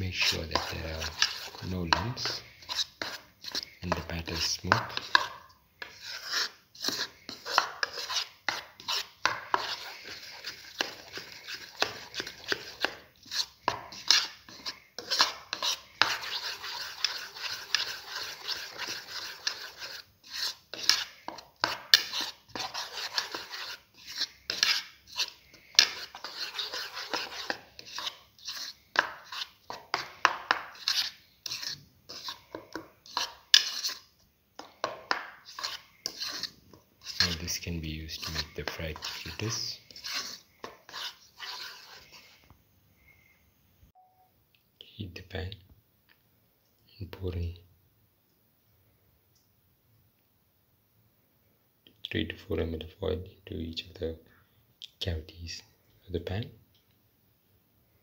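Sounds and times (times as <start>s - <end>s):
spoon beating batter in bowl: 0.0s - 42.5s
spoon scraping bowl: 0.0s - 42.5s.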